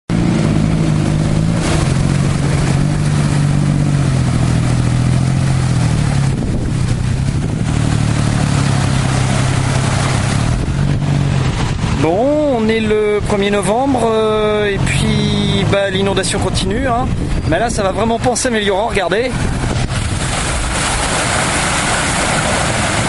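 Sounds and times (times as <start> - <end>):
motor scooter passing: 0.1 - 12.0
tyres splashing through water: 0.1 - 17.5, 18.2 - 23.0
tuk-tuk engine running: 0.1 - 18.2.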